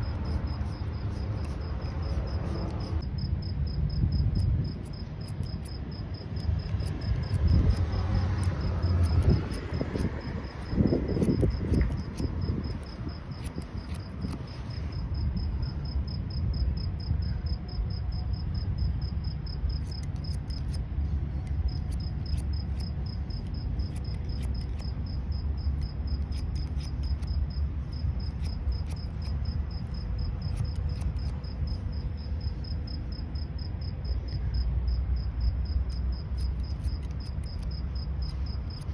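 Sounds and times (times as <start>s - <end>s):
insect chirring: 0.0s - 20.8s, 21.6s - 38.9s
low background rumble: 0.0s - 38.9s
scissors snipping hair: 4.4s - 14.8s, 19.5s - 31.7s, 35.7s - 38.9s.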